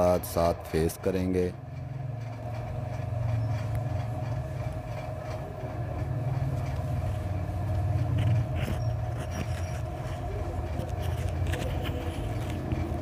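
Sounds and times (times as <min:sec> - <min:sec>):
lathe motor hum: 0:00.0 - 0:13.0.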